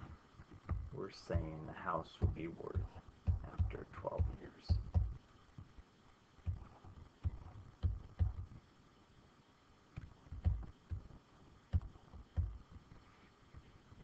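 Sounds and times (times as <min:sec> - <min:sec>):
stylus tapping on pen tablet: 0:02.2 - 0:05.2, 0:06.4 - 0:08.5, 0:10.0 - 0:11.1, 0:11.7 - 0:12.6.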